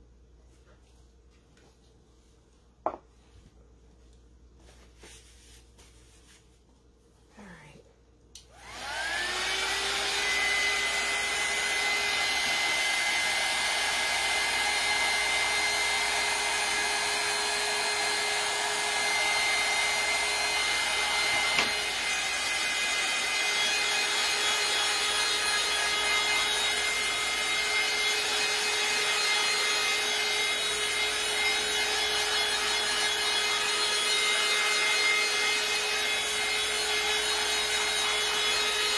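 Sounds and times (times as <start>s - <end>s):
heat tool fan whining: 8.3s - 38.9s.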